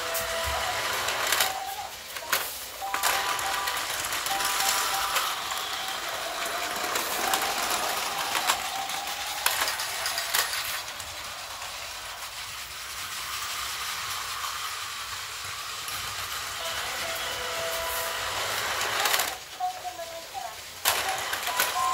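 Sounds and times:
toy train motor whirring: 0.0s - 21.9s
plastic parts rattling: 1.2s - 11.2s.

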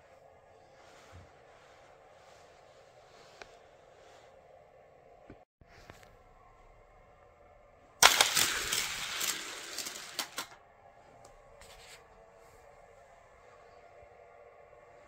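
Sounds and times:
toy cars rattling down plastic track: 8.0s - 10.6s.

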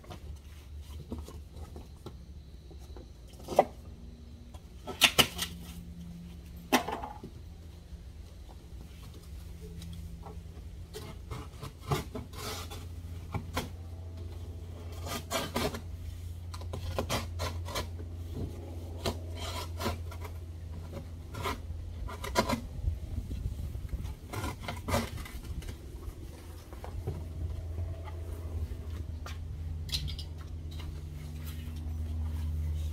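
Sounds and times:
cardboard scraping and tearing: 10.9s - 13.8s, 14.7s - 27.2s.

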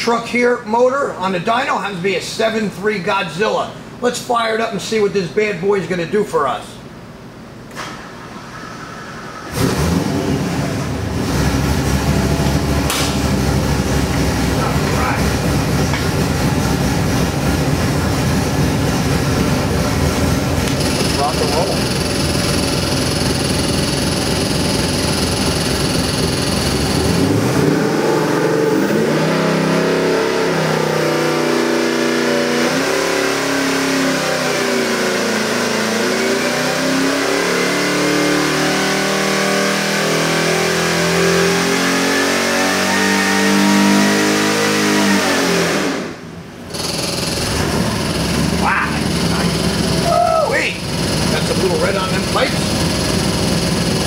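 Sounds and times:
engine revving on a dyno: 7.7s - 54.0s.

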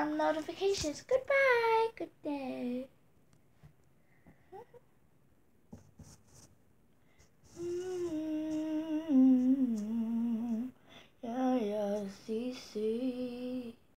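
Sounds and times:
girl humming: 4.5s - 4.8s, 7.5s - 11.6s.

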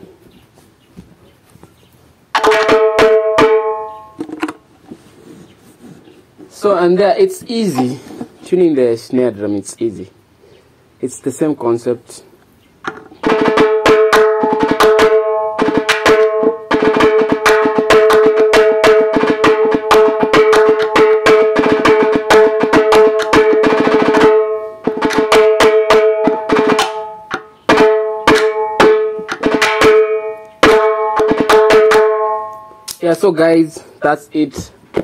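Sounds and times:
tom drum played with sticks: 2.4s - 4.0s, 13.2s - 32.6s.

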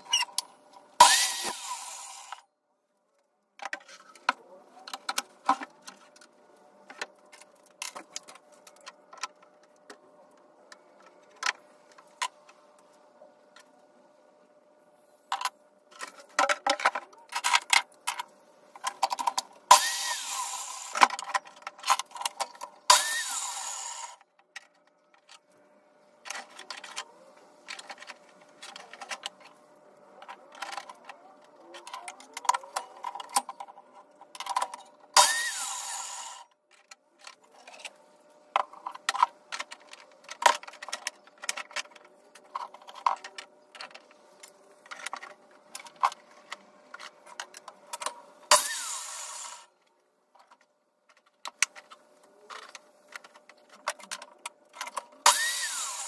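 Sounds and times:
power tool whirring: 1.0s - 2.4s, 19.7s - 21.1s, 22.9s - 24.2s, 35.2s - 36.5s, 48.5s - 49.7s, 55.2s - 56.0s.

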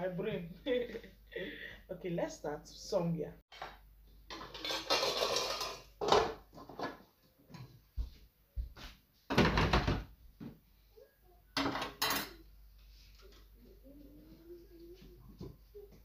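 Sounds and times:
kitchen items knocking and clattering: 3.5s - 7.8s, 9.3s - 10.6s, 11.6s - 12.4s.

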